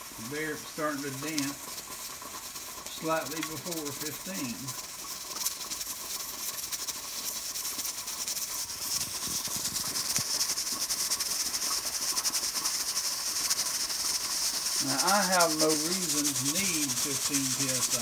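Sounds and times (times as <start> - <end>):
steam hissing: 0.0 - 18.0
pressure cooker weight rattling: 0.9 - 6.5.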